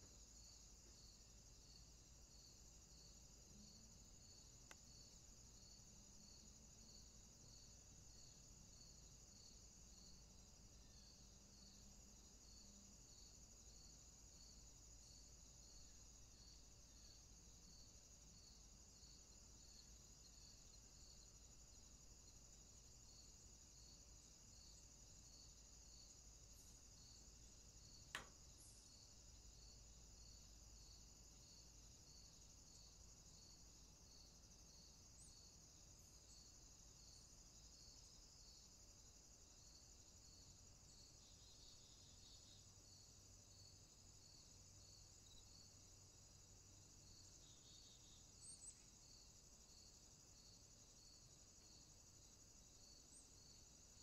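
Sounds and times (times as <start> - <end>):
insects chirping: 0.0 - 54.0
sharp click: 28.1 - 28.4.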